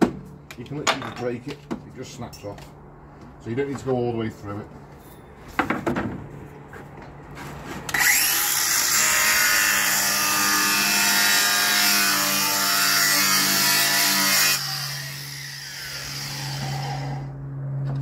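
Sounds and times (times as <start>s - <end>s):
angle grinder cutting cement board: 7.9s - 17.4s.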